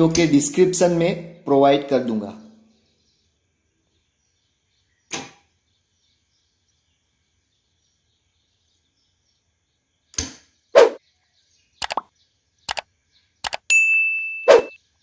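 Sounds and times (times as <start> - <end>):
quick clicks: 11.8 - 12.1, 12.7 - 13.7.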